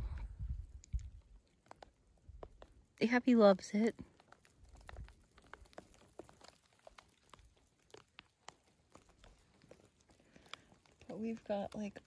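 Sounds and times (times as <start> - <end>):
faint small clicks: 0.1 - 2.8.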